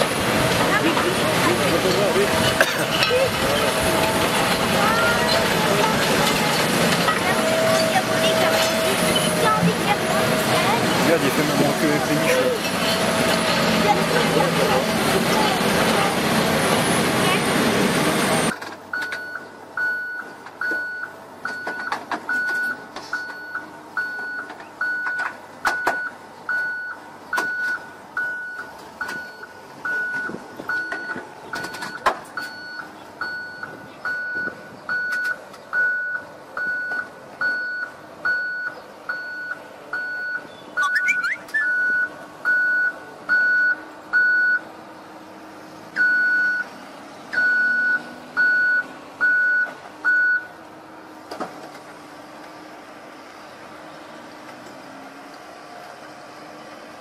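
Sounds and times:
backup alarm beeping: 25.8s - 44.6s.

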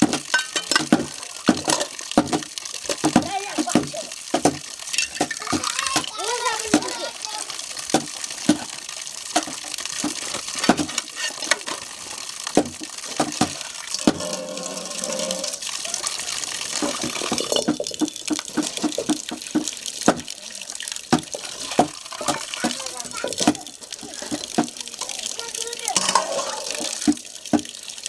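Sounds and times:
water running from a tap: 0.0s - 28.0s
water splashing onto metal dishes: 0.0s - 28.0s
metal dishes clinking: 0.3s - 1.0s, 26.0s - 26.9s.

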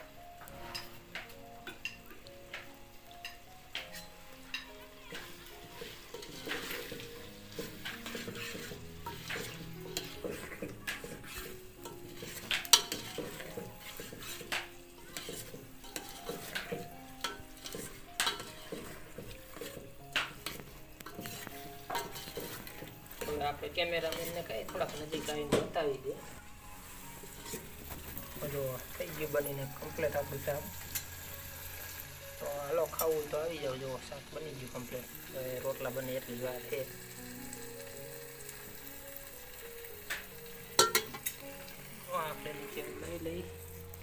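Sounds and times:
low sizzle: 0.0s - 44.0s
ladle scraping a metal pot: 0.4s - 2.0s, 3.8s - 32.1s, 40.1s - 41.5s
metal knocking on a pot: 40.8s - 41.2s.

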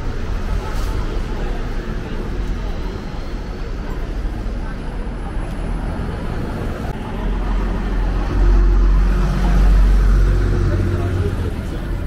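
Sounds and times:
vehicle engine passing by: 5.9s - 12.0s.

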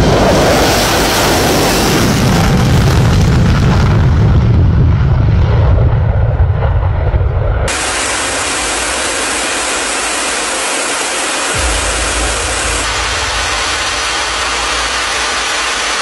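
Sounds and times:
jet engines roaring: 0.0s - 16.0s
steady hiss: 7.7s - 16.0s.

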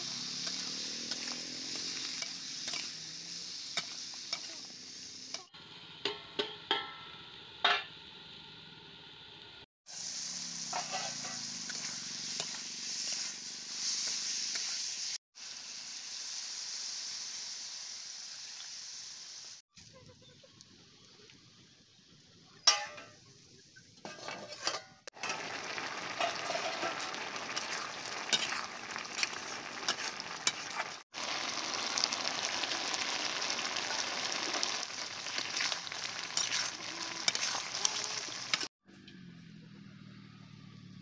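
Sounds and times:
curry bubbling and sizzling: 0.0s - 19.6s, 22.5s - 38.7s
metal spatula stirring: 0.4s - 3.0s, 3.7s - 4.7s, 10.7s - 14.9s, 24.0s - 31.0s, 35.5s - 38.7s
metal clank against pan: 6.0s - 8.0s, 10.7s - 11.4s, 22.7s - 23.2s.

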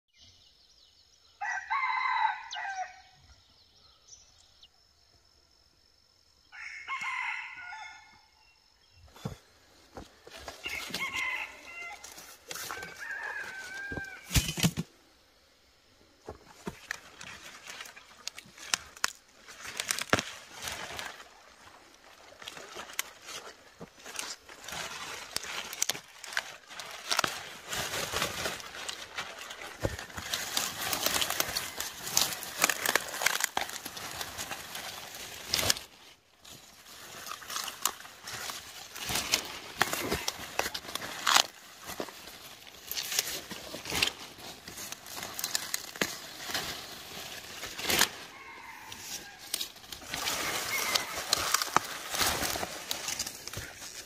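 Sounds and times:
rooster crowing: 1.4s - 3.2s, 6.5s - 8.5s, 10.6s - 14.4s, 48.0s - 52.1s
crackling and rustling: 9.1s - 15.0s, 16.1s - 54.0s.

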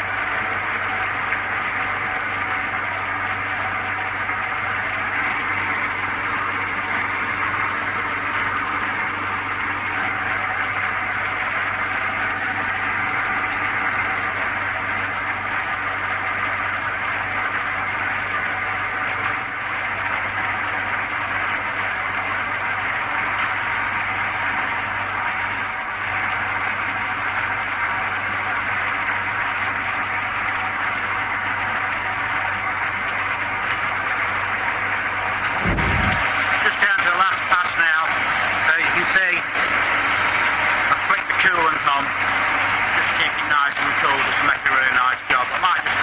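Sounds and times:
workshop vacuum running: 35.4s - 46.0s.

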